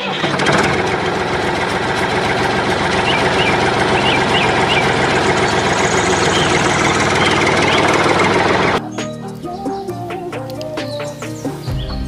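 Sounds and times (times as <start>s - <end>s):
tractor engine running: 0.0s - 8.8s.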